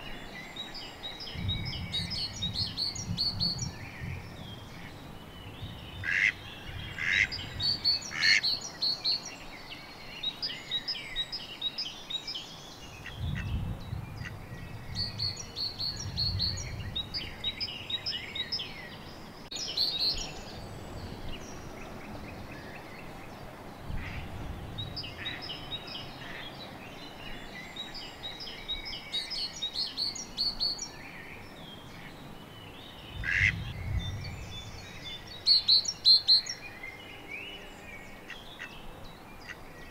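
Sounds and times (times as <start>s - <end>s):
songbirds singing: 0.0s - 39.9s
duck quacking: 6.0s - 6.4s, 33.3s - 33.6s.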